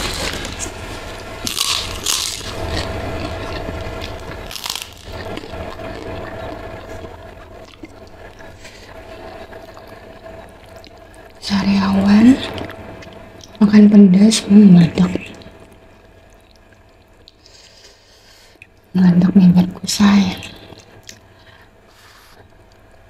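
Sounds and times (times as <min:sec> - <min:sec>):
cracker crunching: 0:00.0 - 0:11.4.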